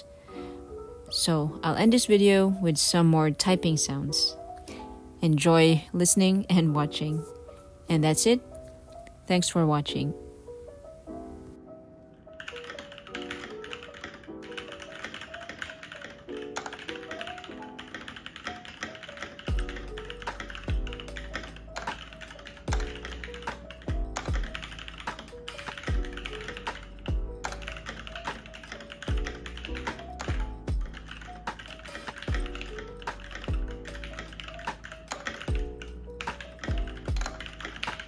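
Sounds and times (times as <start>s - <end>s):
background music: 0.0s - 38.0s
fast keyboard typing: 12.3s - 38.0s
deep beat: 20.7s - 20.9s, 27.1s - 27.4s, 30.3s - 31.0s, 33.5s - 33.8s.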